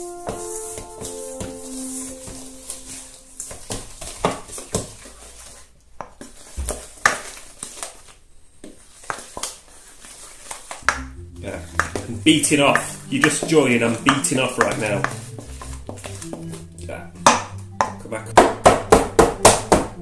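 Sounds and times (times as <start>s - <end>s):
wooden spoon beating in metal bowl: 10.8s - 20.0s.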